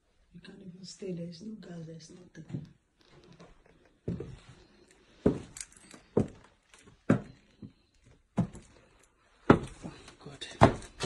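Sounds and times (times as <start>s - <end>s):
footsteps on wooden floorboards: 2.3s - 11.0s.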